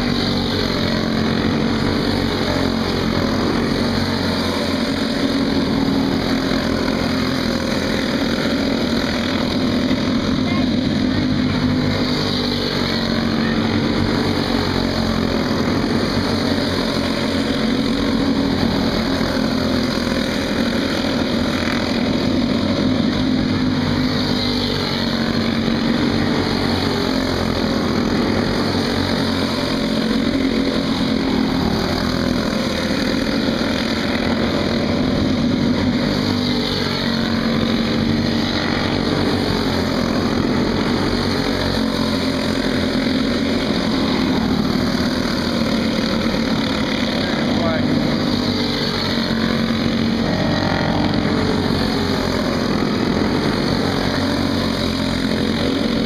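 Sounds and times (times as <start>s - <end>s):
go-kart engines racing: 0.0s - 56.0s.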